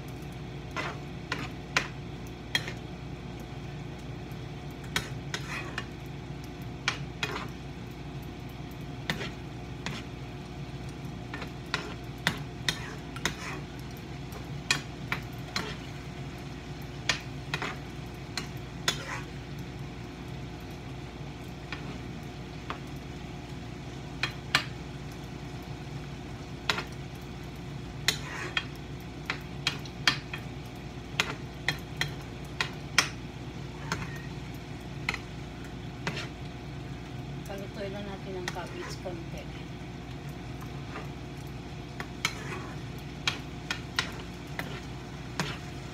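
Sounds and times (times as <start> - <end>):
food sizzling: 0.0 - 45.9
steady low hum: 0.0 - 45.9
utensil scraping a frying pan: 0.7 - 2.8, 4.9 - 6.0, 6.9 - 7.6, 9.0 - 10.2, 11.3 - 13.8, 14.7 - 16.0, 17.1 - 19.4, 28.0 - 28.8, 33.7 - 34.4, 35.9 - 36.4, 40.7 - 41.2, 42.0 - 45.9.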